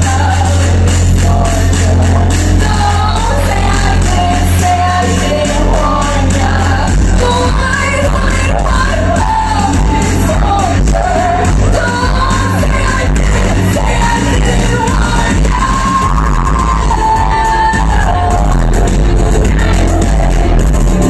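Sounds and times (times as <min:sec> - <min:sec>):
heavy bass line: 0:00.0 - 0:21.0
loud music with singing: 0:00.0 - 0:21.0.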